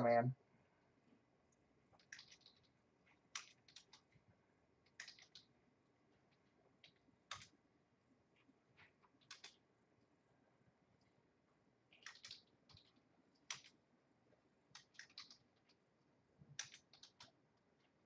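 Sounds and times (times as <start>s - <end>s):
computer keyboard typing: 2.0s - 4.2s, 4.8s - 5.5s, 6.8s - 7.6s, 9.1s - 9.6s, 11.9s - 13.8s, 14.7s - 15.8s, 16.5s - 17.4s.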